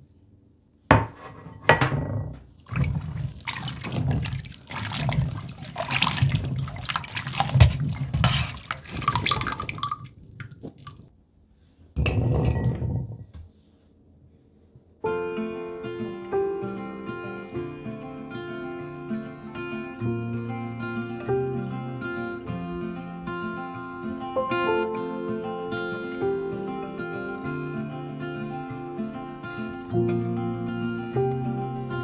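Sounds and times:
water splashing in a sink: 0:02.6 - 0:11.1
acoustic guitar music: 0:15.1 - 0:32.0.

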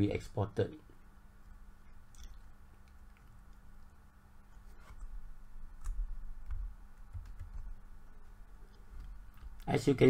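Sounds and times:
steady low hum: 0:00.0 - 0:10.0
computer mouse clicks: 0:05.8 - 0:07.7.

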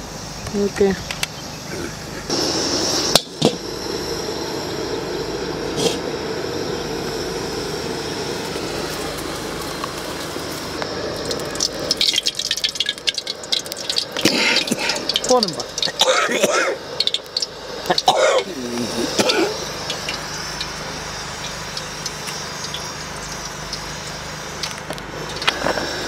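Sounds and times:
liquid pouring into metal pan: 0:11.2 - 0:16.0.

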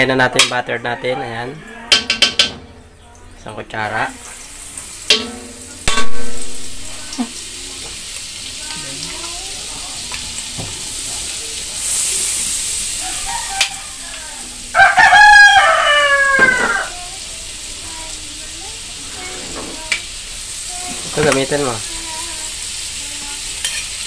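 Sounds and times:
rooster crowing: 0:00.9 - 0:02.1, 0:12.7 - 0:18.0
spoon knocking on wok: 0:01.9 - 0:02.7, 0:05.0 - 0:17.0
butter sizzling in oil: 0:03.4 - 0:24.0.

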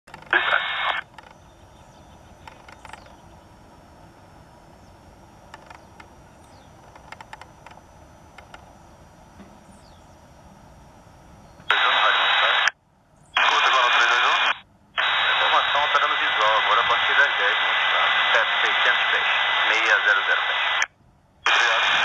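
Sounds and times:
loud burst of radio noise: 0:00.2 - 0:01.1, 0:11.6 - 0:12.7, 0:13.4 - 0:22.0.

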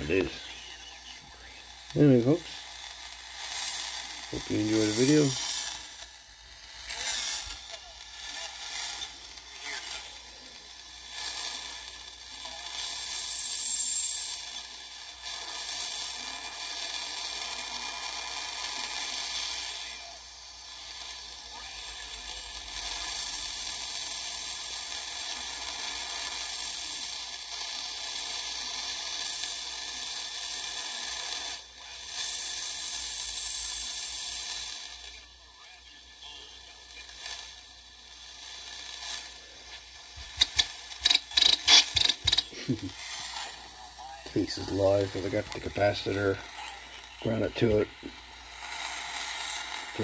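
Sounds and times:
radio static hiss: 0:00.0 - 0:02.6.

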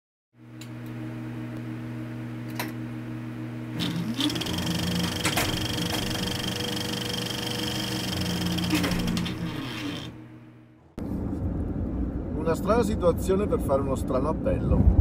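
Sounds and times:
film projector motor hum: 0:03.7 - 0:10.6
projector mechanical clatter: 0:03.8 - 0:10.4.

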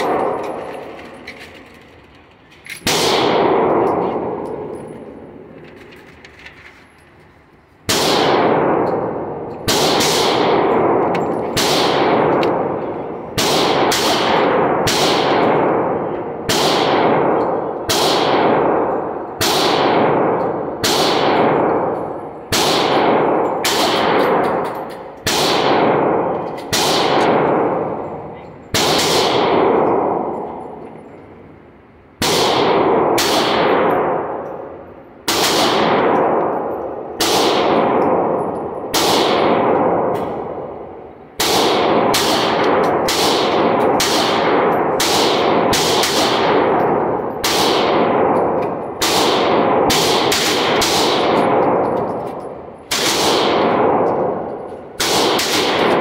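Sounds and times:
pistol shots echoing indoors: 0:00.0 - 0:01.9, 0:02.7 - 0:05.8, 0:07.8 - 0:56.0.

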